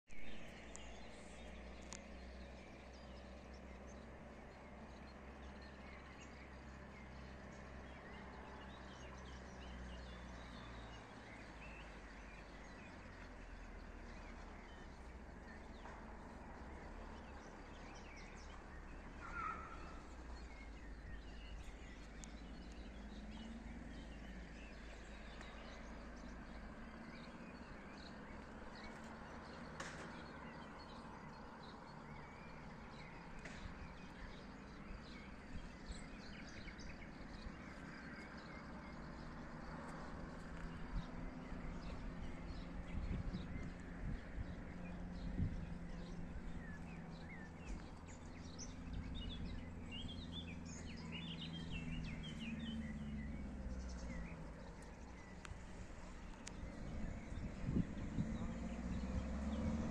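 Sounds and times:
birdsong: 0.0s - 59.9s
low rumble: 39.9s - 59.9s.

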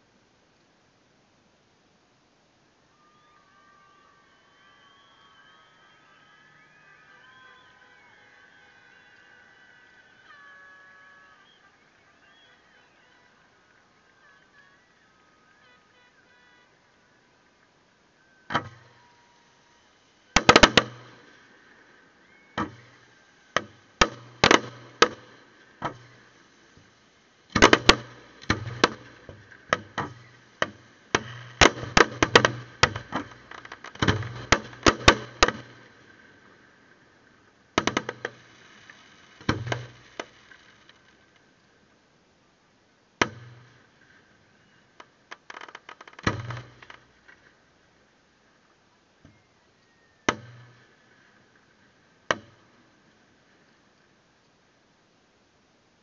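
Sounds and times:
small firework pops: 18.2s - 41.5s, 43.2s - 47.6s, 50.2s - 52.8s
fireworks bangs and booms: 18.5s - 41.3s.

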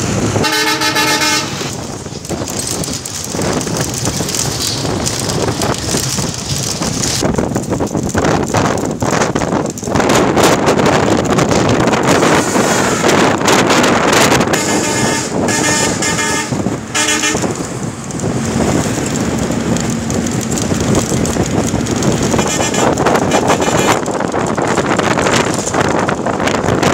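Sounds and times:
road and wind noise: 0.0s - 26.9s
vehicle horn: 0.4s - 1.7s, 12.3s - 13.3s, 14.4s - 17.5s, 22.3s - 24.0s.

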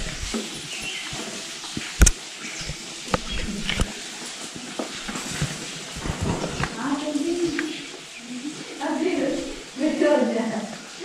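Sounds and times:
faint voices: 6.6s - 11.0s.

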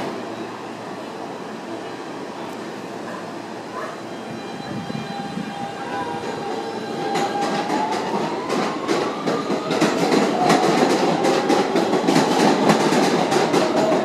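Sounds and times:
train rumble: 0.0s - 14.0s
wheels clicking over rail joints: 6.2s - 14.0s.

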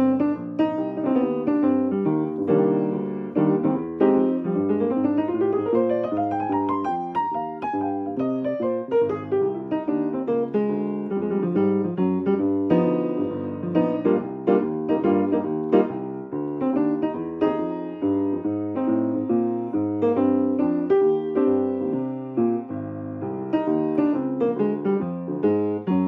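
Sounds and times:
solo piano: 0.0s - 26.0s.

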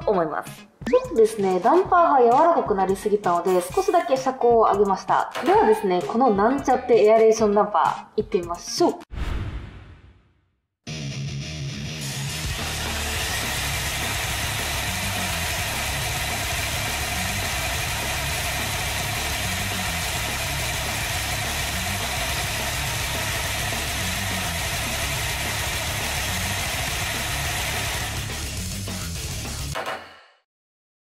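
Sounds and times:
toy car whirring on rollers: 12.5s - 28.3s.

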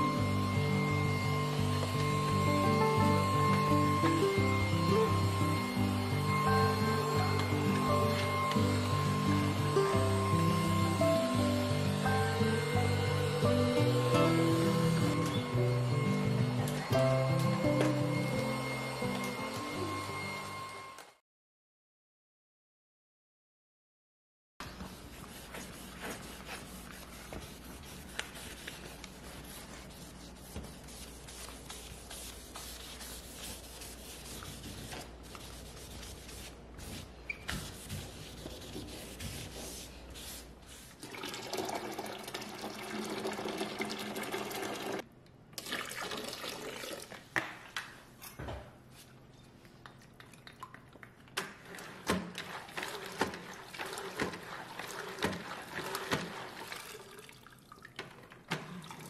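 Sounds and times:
sponge scrubbing: 24.6s - 41.0s, 51.6s - 57.2s.

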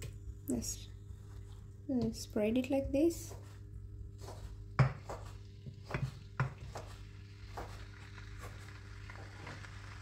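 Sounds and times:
steady low hum: 0.0s - 10.0s
oil sizzling: 4.4s - 10.0s.

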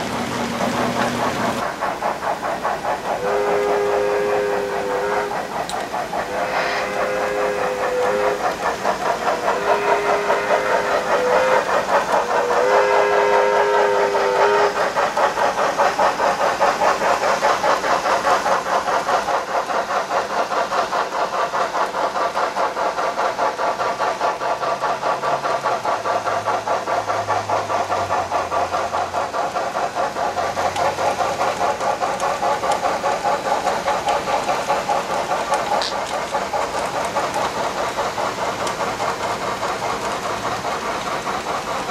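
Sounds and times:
model locomotive exhaust chuffs: 0.0s - 41.9s
two-note train whistle: 3.2s - 5.4s, 6.3s - 8.6s, 9.5s - 14.8s.

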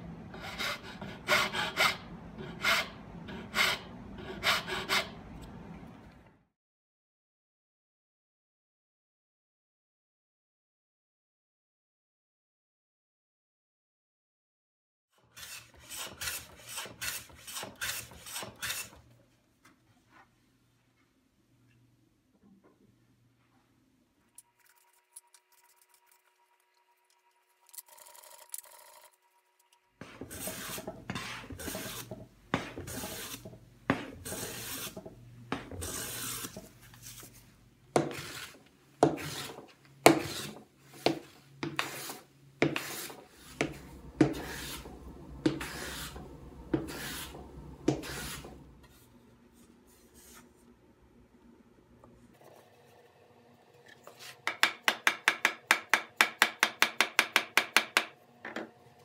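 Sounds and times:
hand plane shaving wood: 15.3s - 19.0s, 30.0s - 37.2s, 38.0s - 48.6s.

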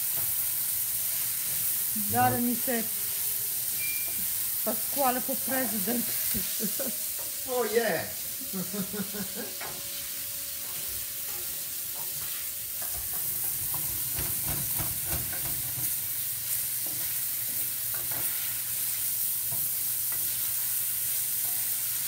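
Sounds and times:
vegetables sizzling in oil: 0.0s - 22.0s
wooden spoon scraping a pan: 9.6s - 18.9s.

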